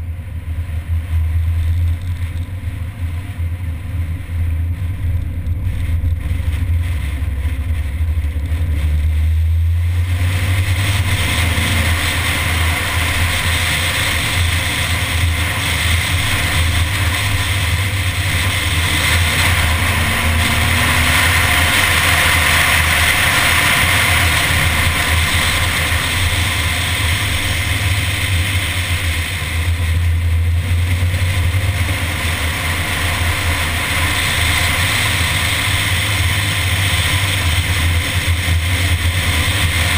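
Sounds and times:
car driving at speed: 0:00.0 - 0:39.9.

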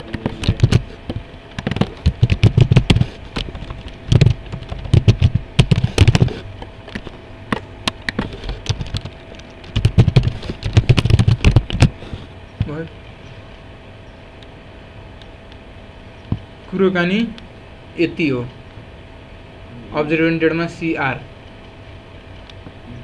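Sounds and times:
typing on computer keyboard: 0:08.5 - 0:11.9.

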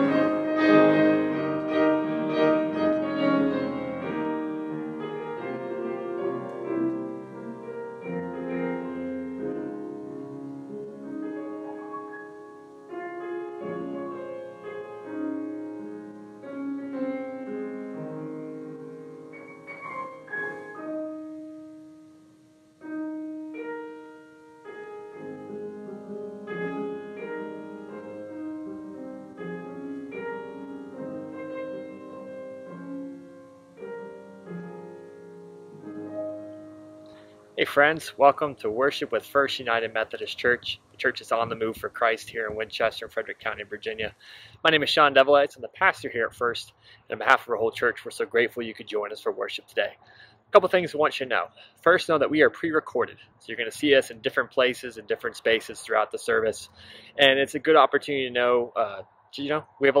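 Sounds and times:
piano playing chords and melody: 0:00.0 - 0:43.2.

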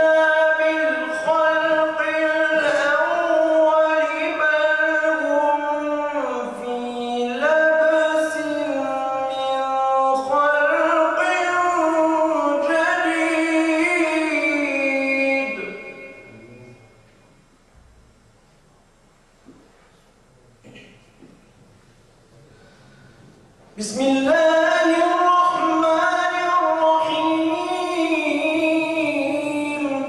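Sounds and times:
man reciting melodically: 0:00.0 - 0:17.0, 0:23.7 - 0:30.0.

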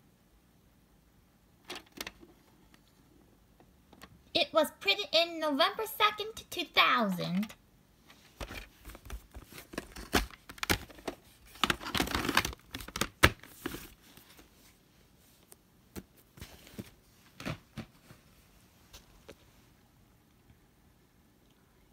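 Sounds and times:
plastic case clicks and rustles: 0:01.6 - 0:02.9, 0:08.4 - 0:14.0
plastic crinkling: 0:08.8 - 0:14.3.

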